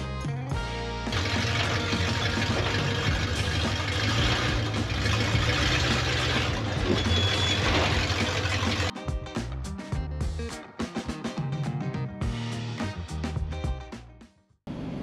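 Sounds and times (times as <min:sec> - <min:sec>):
truck engine running: 0:01.1 - 0:08.9
short high beep: 0:07.0 - 0:07.7.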